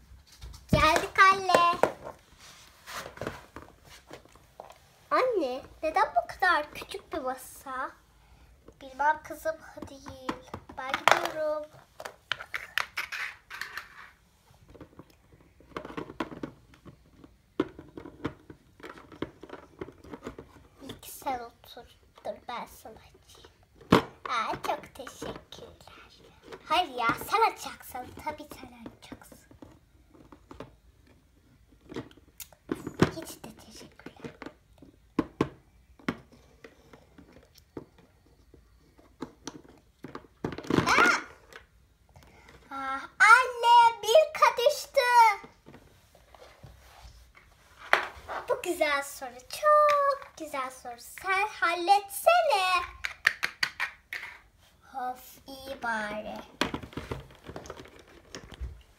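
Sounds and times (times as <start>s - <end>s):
toy figures tapping on cardboard: 52.8s - 54.4s.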